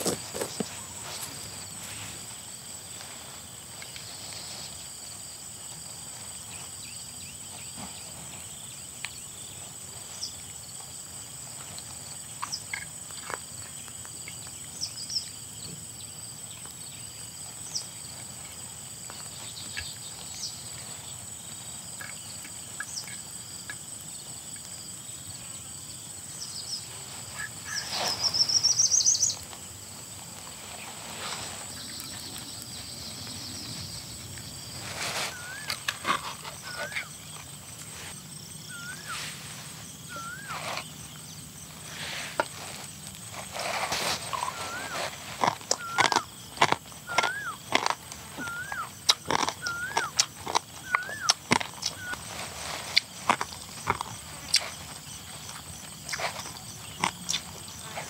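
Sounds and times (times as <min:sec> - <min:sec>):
high-pitched insect drone: 0:31.5 - 0:41.9.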